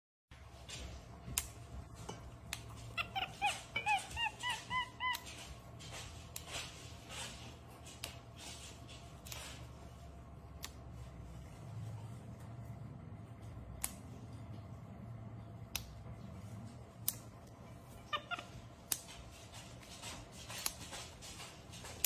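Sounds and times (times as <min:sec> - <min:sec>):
monkey chirping: 0:02.8 - 0:05.5, 0:18.0 - 0:18.6.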